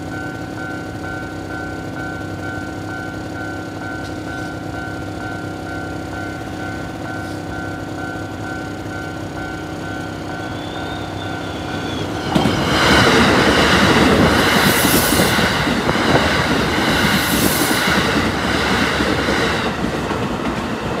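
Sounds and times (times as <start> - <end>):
level crossing warning bell: 0.0 - 19.2
train wheels clattering: 10.4 - 21.0.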